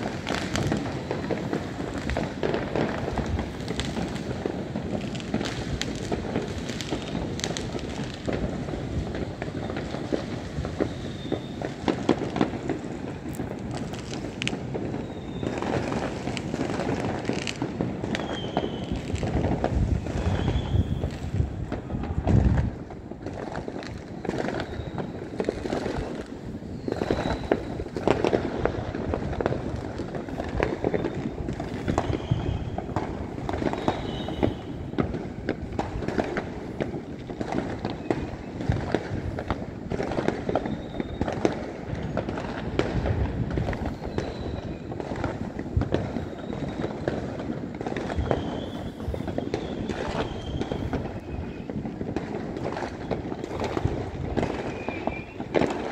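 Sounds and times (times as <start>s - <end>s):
distant fireworks bangs and pops: 0.0s - 55.9s.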